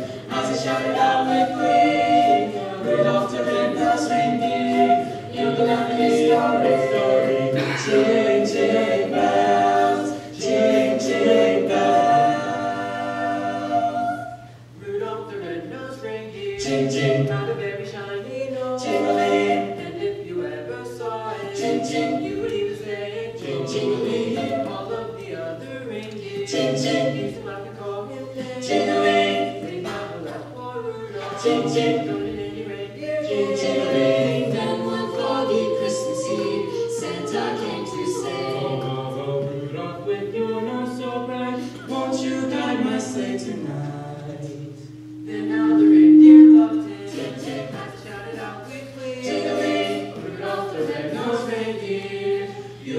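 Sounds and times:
a cappella vocal ensemble singing: 0:00.0 - 0:52.9.

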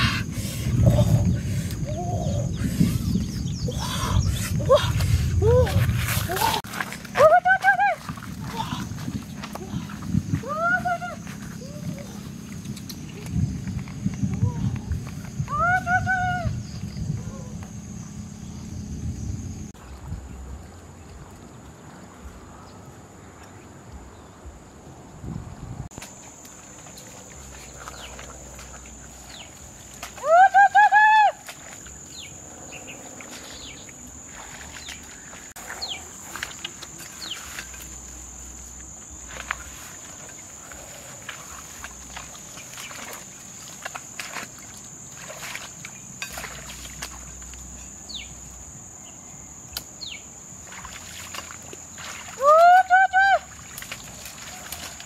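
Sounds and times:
leaves and stems rustling: 0:04.8 - 0:18.0, 0:25.9 - 0:55.0.

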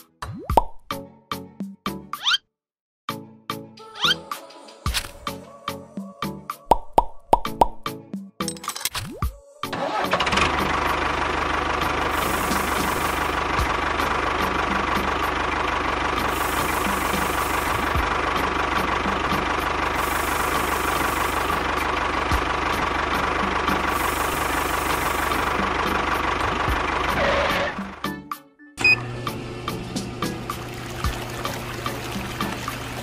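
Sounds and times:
tractor engine idling: 0:09.8 - 0:28.2.

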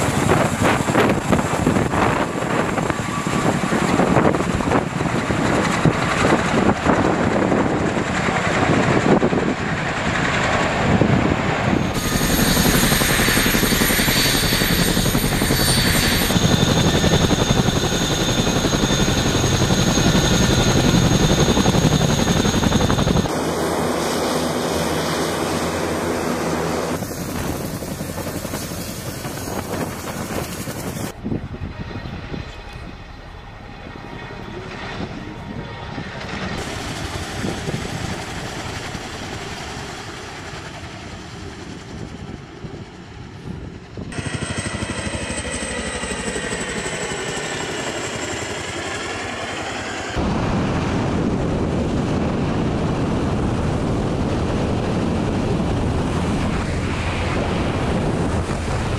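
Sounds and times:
helicopter rotor and engine noise: 0:00.0 - 0:58.9
wind noise from aircraft in flight: 0:00.0 - 0:58.9
faint high whine falling in pitch: 0:11.8 - 0:23.3.

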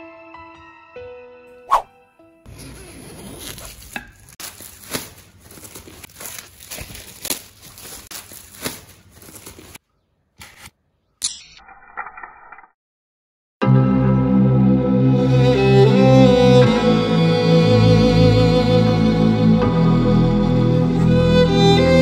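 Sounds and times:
plastic wrap crinkling and tearing: 0:02.5 - 0:09.8.

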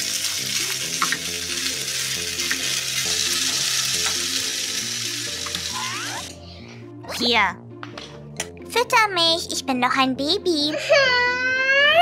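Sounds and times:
pasta sizzling in a frying pan: 0:00.0 - 0:06.3.

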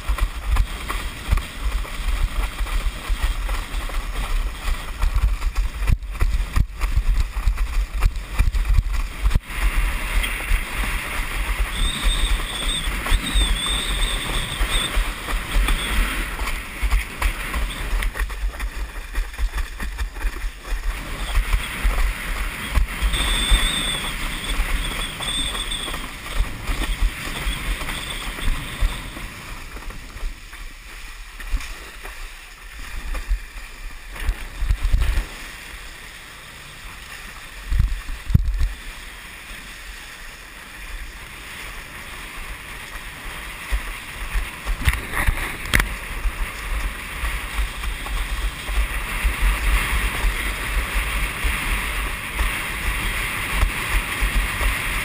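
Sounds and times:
wind buffeting microphone: 0:00.0 - 0:30.9, 0:41.0 - 0:55.0
water rushing past board: 0:00.0 - 0:55.0
high whistle: 0:11.6 - 0:15.0, 0:22.6 - 0:26.2.

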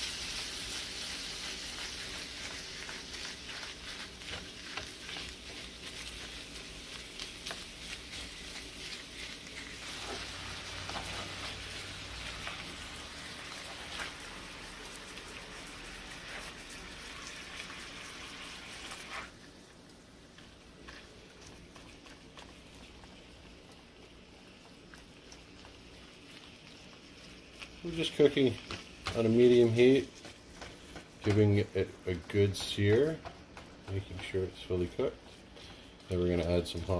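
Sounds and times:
meat sizzling in a frying pan: 0:00.0 - 0:36.9
spatula scraping and tapping pan: 0:01.6 - 0:11.6, 0:27.2 - 0:36.9.

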